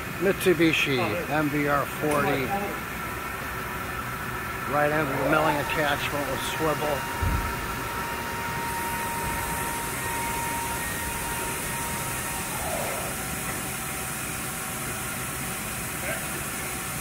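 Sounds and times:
machinery humming: 0:00.0 - 0:17.0
machine whining tones: 0:04.6 - 0:16.0.

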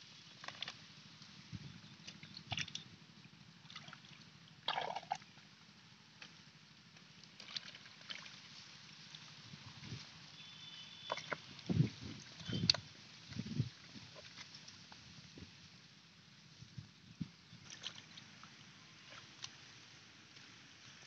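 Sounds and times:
hands sloshing in muddy water: 0:02.0 - 0:02.8, 0:03.6 - 0:05.3, 0:07.3 - 0:09.3, 0:17.6 - 0:19.7.

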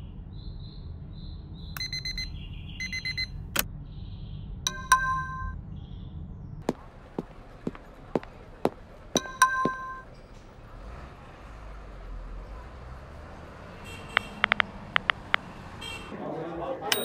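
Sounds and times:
phone alarm beeping: 0:01.8 - 0:03.3
sharp taps: 0:06.7 - 0:10.0, 0:14.1 - 0:15.5.

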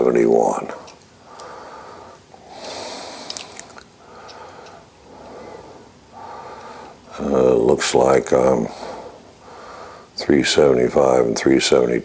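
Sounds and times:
man breathing: 0:00.7 - 0:07.4, 0:08.5 - 0:10.2
light clicks: 0:00.8 - 0:01.6, 0:02.6 - 0:05.4.

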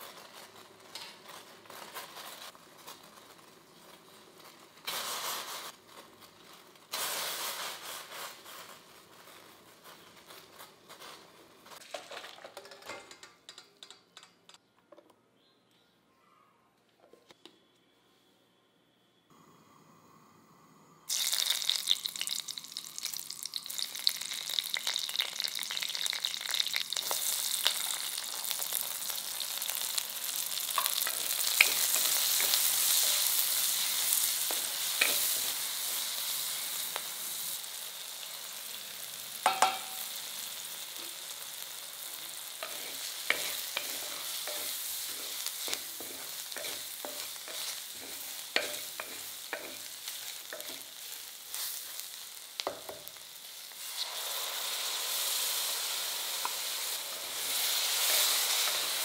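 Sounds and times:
food sizzling in hot oil: 0:00.0 - 0:12.8, 0:21.1 - 0:59.0
spatula scraping and tapping pot: 0:30.8 - 0:33.2, 0:34.5 - 0:35.5, 0:39.4 - 0:40.0, 0:42.6 - 0:50.9.

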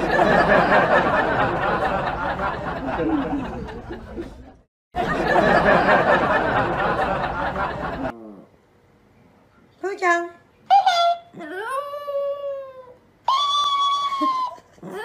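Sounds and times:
canned audience laughter: 0:00.0 - 0:08.1.

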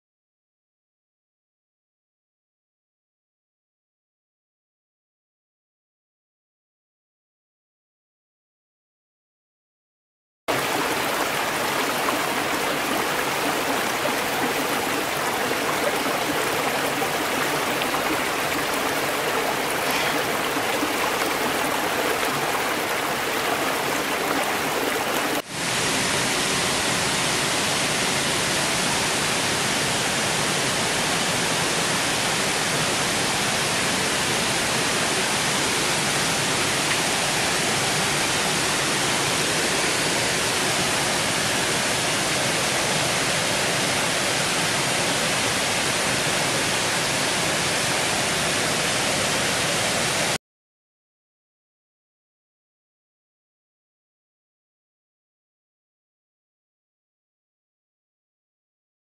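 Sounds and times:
water spilling over a weir: 0:10.5 - 0:25.4
water rushing over stones: 0:10.5 - 0:26.3.

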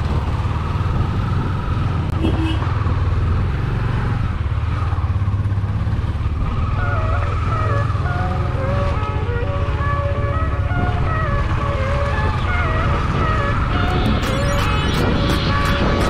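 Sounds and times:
motorcycle engine running: 0:00.0 - 0:08.7.

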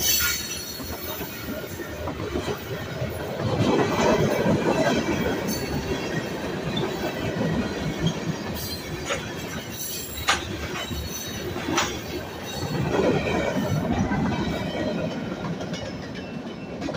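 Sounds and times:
train wheels rumbling on rail: 0:00.0 - 0:16.9
wheels clicking over rail joints: 0:00.0 - 0:16.9.

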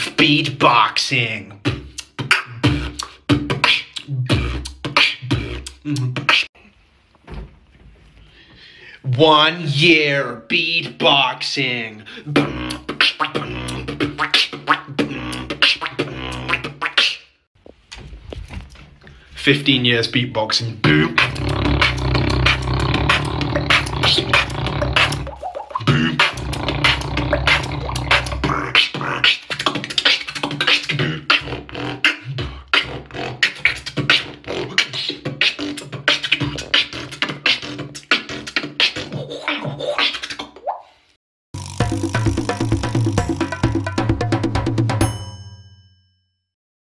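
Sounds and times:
beatboxing: 0:00.0 - 0:06.6, 0:09.1 - 0:17.3, 0:19.4 - 0:40.8.

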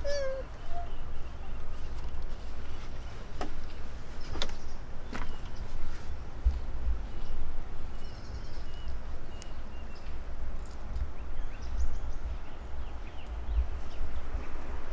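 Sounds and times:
bird chirping: 0:00.0 - 0:01.9, 0:07.0 - 0:10.2, 0:11.2 - 0:14.4
wind buffeting microphone: 0:00.0 - 0:14.9.

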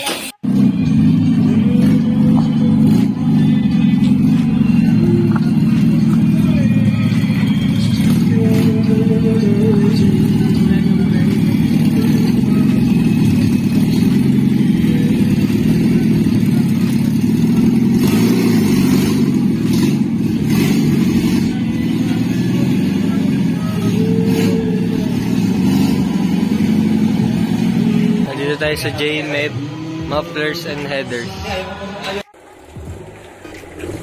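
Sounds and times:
jeep engine running at low revs: 0:00.4 - 0:31.0.

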